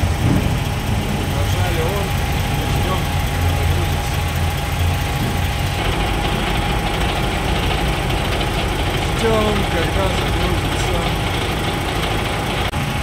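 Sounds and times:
refrigeration unit engine hum: 0.0 - 13.0
rushing noise: 0.0 - 13.0.

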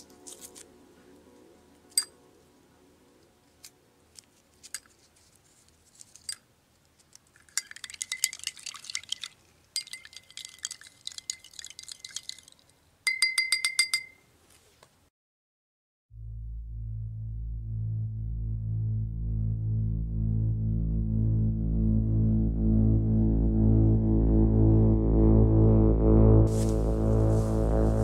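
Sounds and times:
spoon clinking in a glass: 7.5 - 12.5, 13.1 - 14.2.

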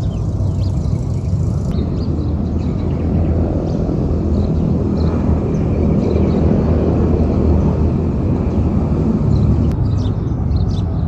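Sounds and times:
small birds chirping: 0.0 - 11.0
steady low rumble: 0.0 - 11.0.

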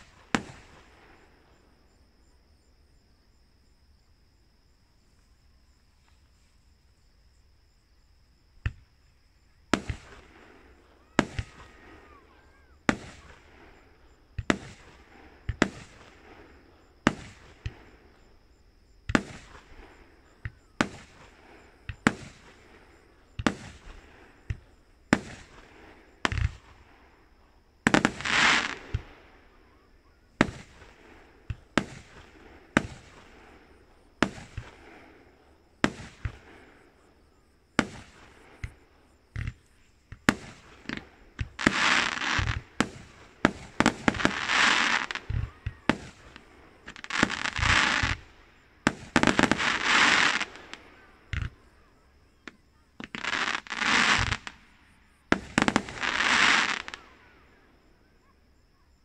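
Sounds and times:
fireworks bursting with echo: 0.0 - 1.7, 8.6 - 57.7.

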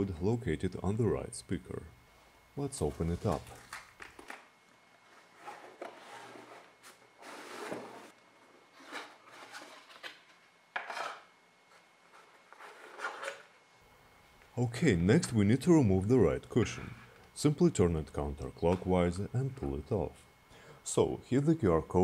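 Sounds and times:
cardboard rubbing and scraping: 5.1 - 8.1.

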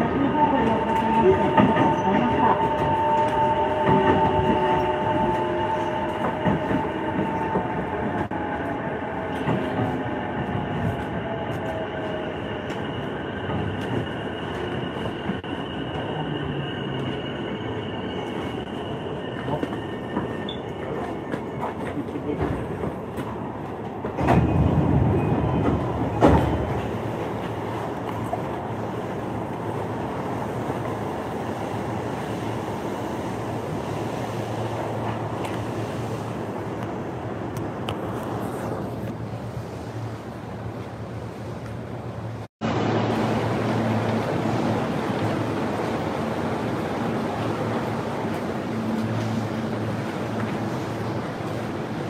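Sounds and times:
train rumble: 0.0 - 52.0.

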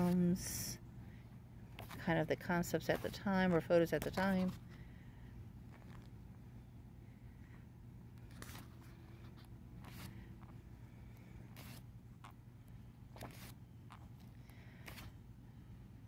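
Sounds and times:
low steady hum: 0.0 - 16.0
pages flicking: 11.6 - 11.8, 13.2 - 13.6.

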